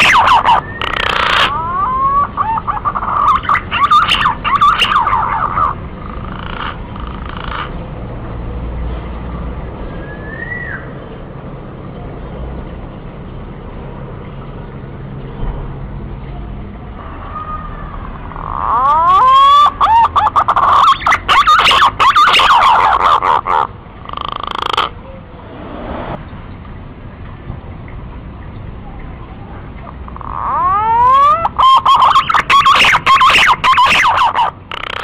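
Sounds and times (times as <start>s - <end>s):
pigeon calling with wavering whistles: 0.0s - 5.8s, 10.0s - 10.9s, 18.7s - 23.4s, 30.3s - 35.0s.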